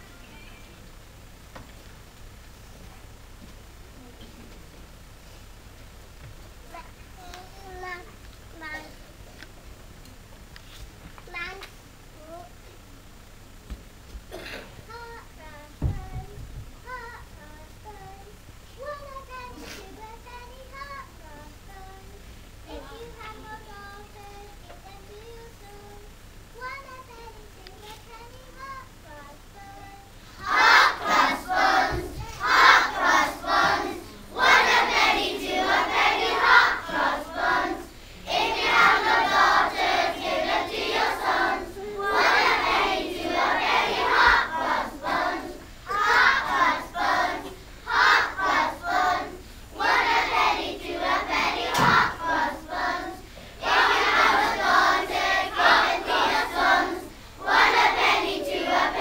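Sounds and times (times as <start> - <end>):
children singing together: 26.6 - 59.0.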